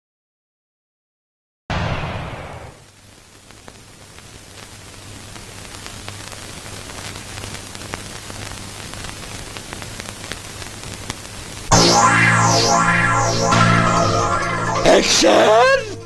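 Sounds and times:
scattered crackles: 0:02.4 - 0:16.0
steady hiss: 0:02.6 - 0:12.8
low hum: 0:11.7 - 0:16.0.

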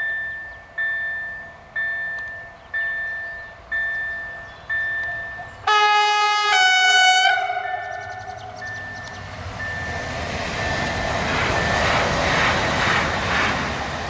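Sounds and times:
level-crossing warning bell: 0:00.0 - 0:12.1
train horn blast: 0:05.7 - 0:08.3.

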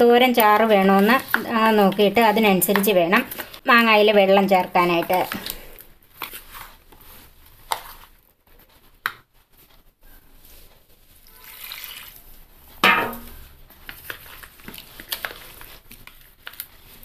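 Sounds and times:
metal spoon stirring and scraping: 0:00.0 - 0:03.6
brine pouring: 0:11.2 - 0:12.3
loud knock: 0:12.8 - 0:13.3.

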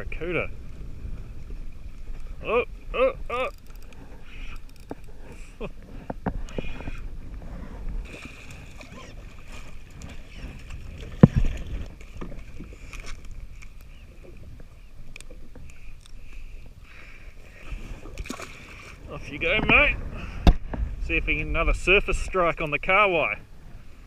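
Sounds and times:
waves slapping against hull: 0:00.1 - 0:16.7, 0:17.4 - 0:24.0
fishing reel clicking: 0:03.5 - 0:05.1.

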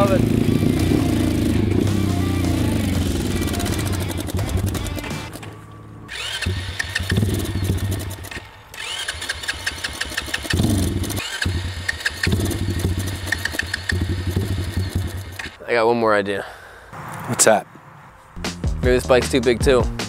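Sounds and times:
small engine running unevenly: 0:00.0 - 0:15.6.

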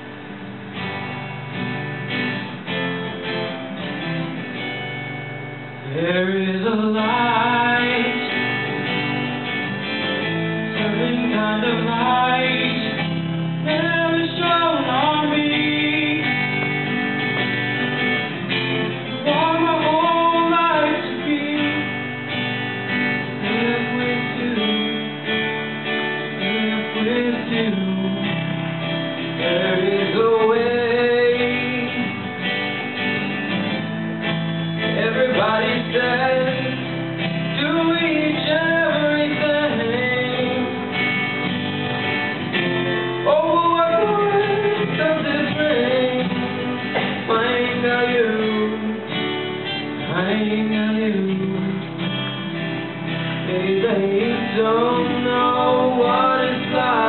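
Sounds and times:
acoustic guitars strummed: 0:00.0 - 0:57.0
man singing: 0:05.8 - 0:08.7, 0:10.2 - 0:16.8, 0:19.0 - 0:22.2, 0:23.2 - 0:25.4, 0:26.2 - 0:28.6, 0:29.2 - 0:32.4, 0:34.8 - 0:41.1, 0:43.1 - 0:49.2, 0:50.0 - 0:52.0, 0:53.4 - 0:57.0.

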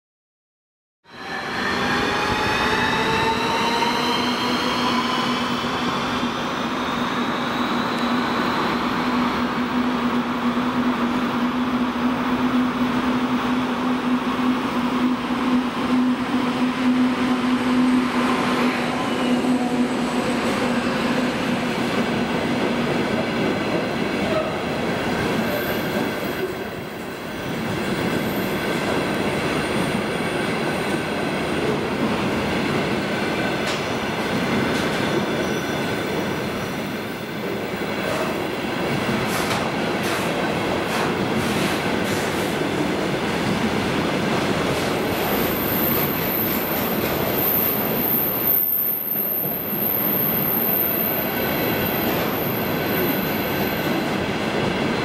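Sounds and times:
diesel locomotive engine drone: 0:01.2 - 0:23.0.

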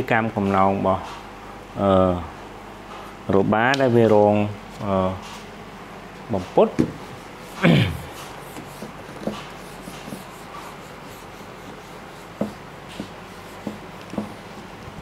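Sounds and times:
marker rubbing on whiteboard: 0:07.0 - 0:14.6
marker tip tapping board: 0:08.5 - 0:10.5, 0:11.6 - 0:14.4.

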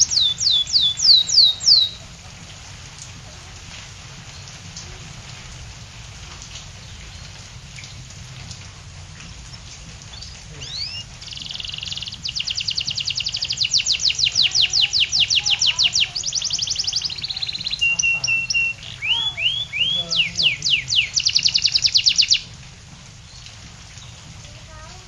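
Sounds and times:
canary singing: 0:00.0 - 0:02.2, 0:10.2 - 0:22.5
rain hissing: 0:00.0 - 0:25.0.

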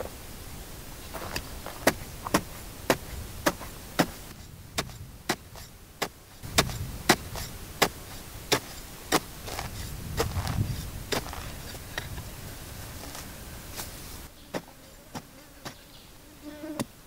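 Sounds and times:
hoe chopping stony ground: 0:01.2 - 0:12.2, 0:14.5 - 0:15.8.

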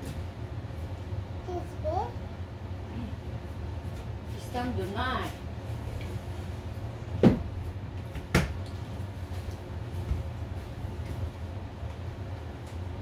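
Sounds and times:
steady low hum: 0:00.0 - 0:13.0
knocks on hard surface: 0:07.2 - 0:07.5.

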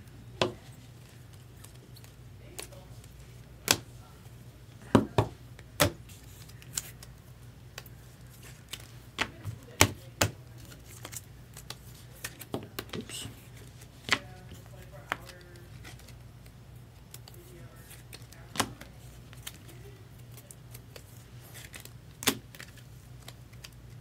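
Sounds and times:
low steady hum: 0:00.0 - 0:24.0
cards clicking and tapping: 0:07.7 - 0:13.3, 0:14.0 - 0:16.2, 0:17.0 - 0:24.0.

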